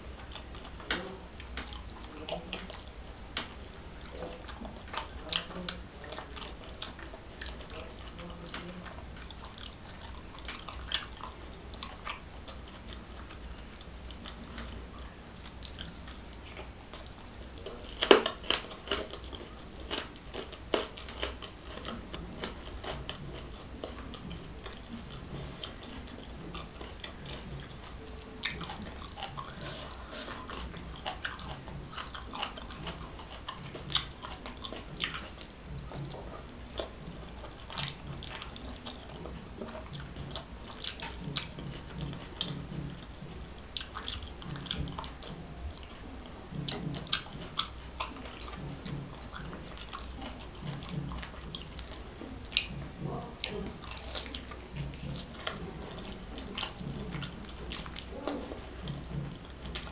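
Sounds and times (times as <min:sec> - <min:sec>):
chewing and wet mouth sounds: 0:00.0 - 0:59.9.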